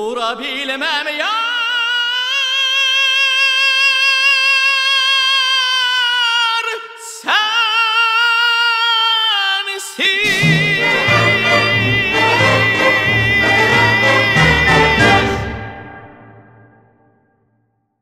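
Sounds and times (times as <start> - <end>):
tenor voice singing: 9.8 - 16.0.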